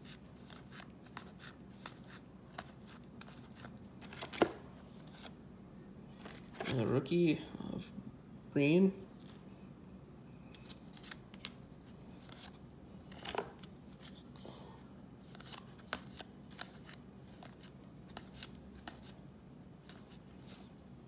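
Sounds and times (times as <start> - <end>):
trading cards being flipped: 0.0 - 5.3, 10.5 - 14.3, 15.2 - 19.2.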